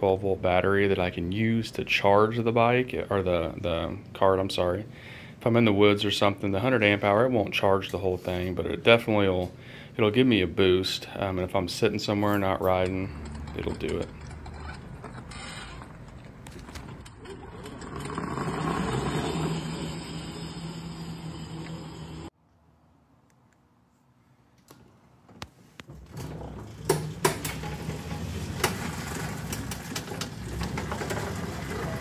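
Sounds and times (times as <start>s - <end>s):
sharp clicks and knocks: 12.7s - 18.2s, 24.6s - 31.3s
chain and tyre noise: 12.8s - 22.3s
electric go-kart drive hum: 17.3s - 22.3s.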